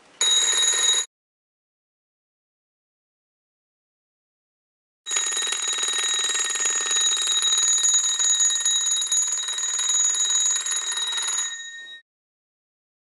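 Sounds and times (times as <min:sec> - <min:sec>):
electric alarm bell ringing: 0:00.2 - 0:01.1, 0:05.1 - 0:12.0.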